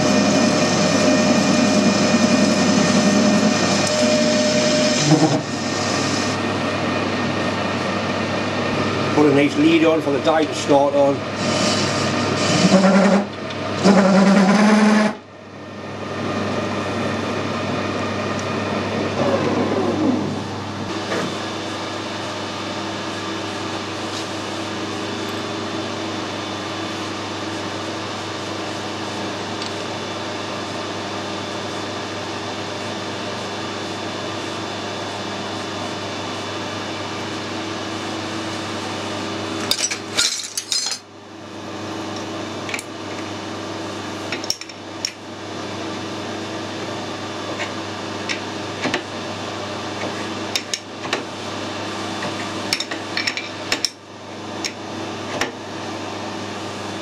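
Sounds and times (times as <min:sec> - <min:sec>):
machine hum: 0:00.0 - 0:57.0
metal lathe turning: 0:11.2 - 0:15.2.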